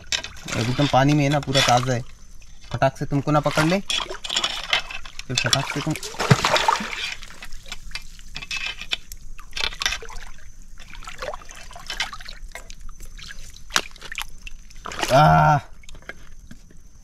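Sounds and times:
shallow water splashing and sloshing: 0.0s - 16.9s
small sharp splashes and drips: 3.5s - 16.6s.

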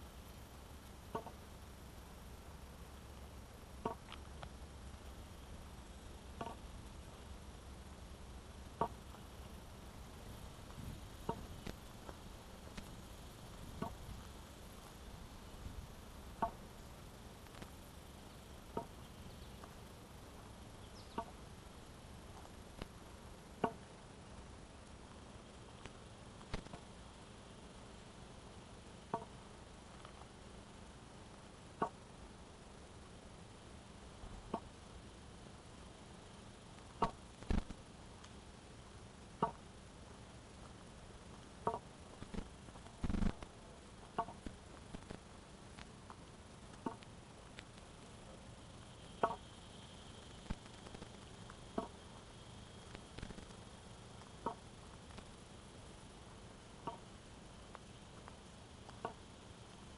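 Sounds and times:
faint outdoor background: 0.0s - 59.9s
walking stick tapping on path: 1.1s - 1.4s, 3.8s - 4.6s, 6.4s - 6.6s, 13.7s - 14.3s, 16.4s - 16.6s, 41.6s - 45.2s.

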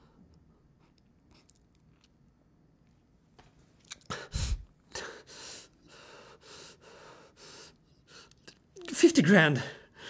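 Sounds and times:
man gasping: 4.1s - 7.6s
heavy distressed breathing: 4.1s - 7.8s.

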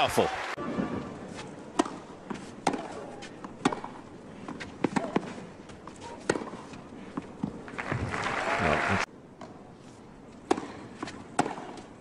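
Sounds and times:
racket striking tennis ball: 0.7s - 7.6s, 10.4s - 11.9s.

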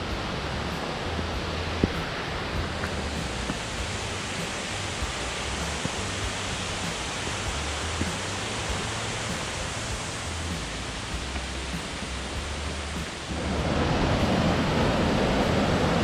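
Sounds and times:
waterfall rushing: 0.0s - 16.0s.

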